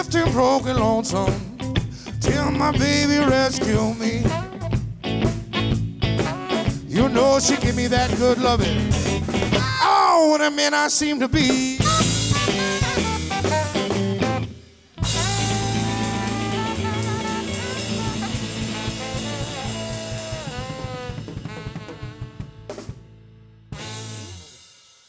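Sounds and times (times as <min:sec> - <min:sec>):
live band playing: 0:00.0 - 0:10.0, 0:11.2 - 0:24.8
drum roll: 0:00.2 - 0:09.8, 0:11.2 - 0:23.1, 0:23.8 - 0:25.0
saxophone: 0:02.3 - 0:08.6, 0:11.8 - 0:23.1, 0:23.8 - 0:24.6.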